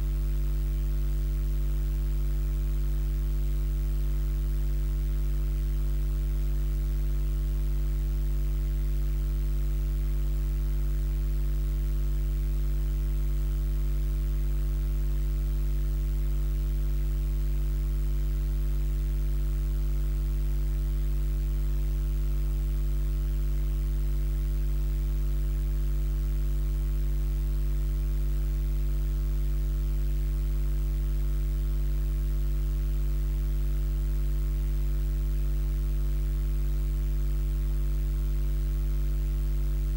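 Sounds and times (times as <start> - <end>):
electrical hum with buzz: 0.0 - 39.9.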